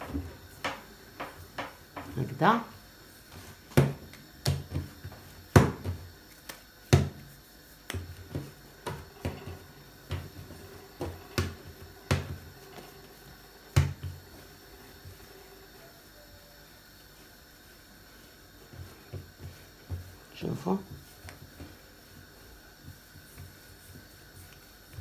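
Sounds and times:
dough slapping on a table: 3.2 - 15.3, 17.1 - 25.0.

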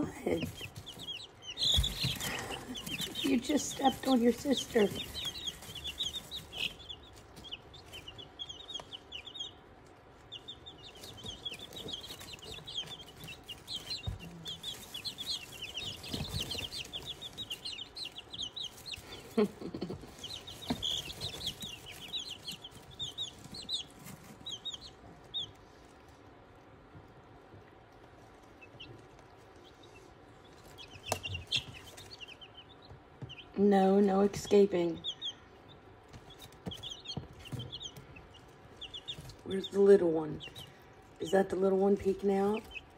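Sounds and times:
chicks peeping: 0.0 - 42.9.

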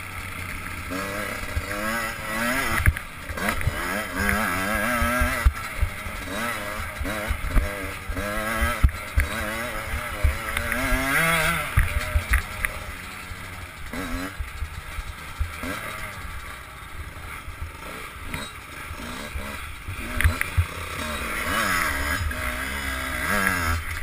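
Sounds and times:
motorcycle engine revving: 0.0 - 24.0
motorcycle knocking over bumps: 0.8 - 16.5.

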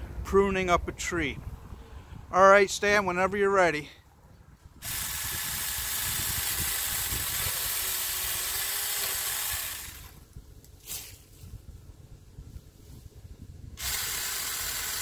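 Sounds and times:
electric chainsaw motor whine: 4.8 - 10.3, 13.8 - 15.0.

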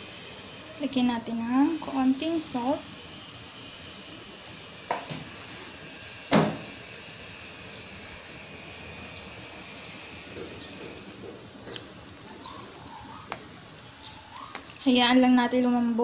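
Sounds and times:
pot of water hissing: 0.0 - 16.0.

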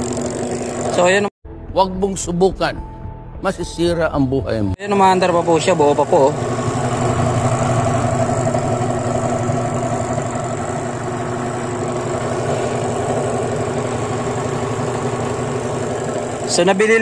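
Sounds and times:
washing machine motor humming: 0.0 - 1.3, 4.8 - 17.0.

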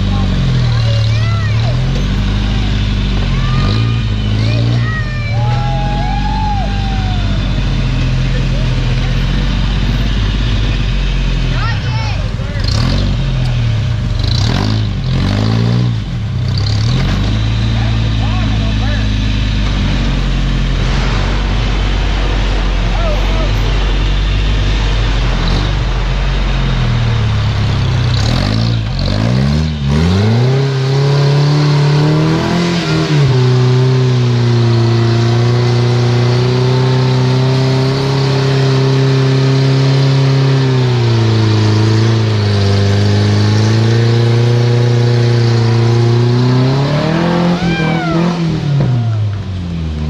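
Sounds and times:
engine revving hard: 0.0 - 50.0.

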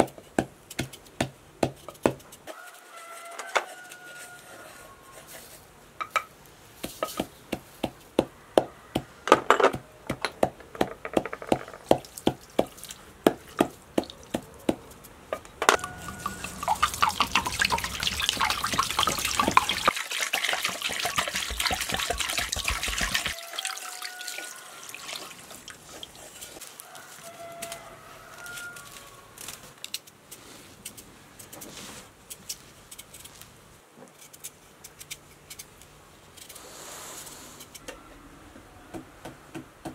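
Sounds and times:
hands patting raw poultry skin: 6.8 - 9.1, 9.8 - 15.2, 15.8 - 19.9, 20.6 - 24.3, 25.0 - 29.7.

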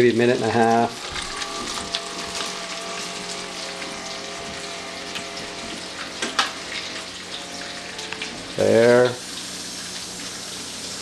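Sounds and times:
fish frying in oil: 0.0 - 11.0
sharp crackle: 1.0 - 7.5.

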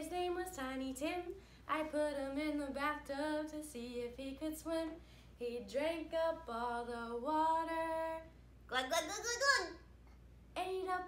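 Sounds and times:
woman singing unaccompanied: 0.0 - 8.3, 10.6 - 11.0.

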